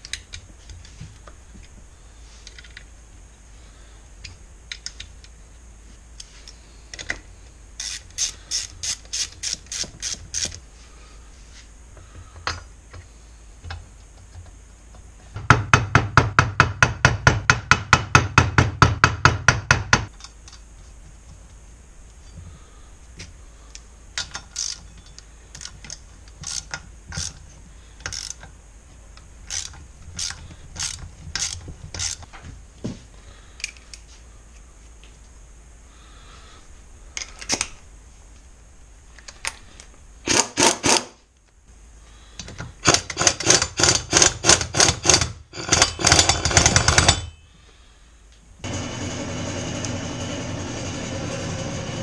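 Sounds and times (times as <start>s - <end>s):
steady noisy sound: 0.0s - 52.0s
fast ratchet clicking: 7.8s - 10.6s, 29.5s - 32.2s, 42.8s - 47.2s.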